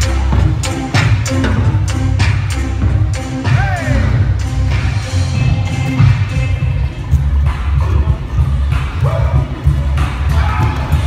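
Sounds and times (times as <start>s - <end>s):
loud music with heavy bass: 0.0s - 11.0s.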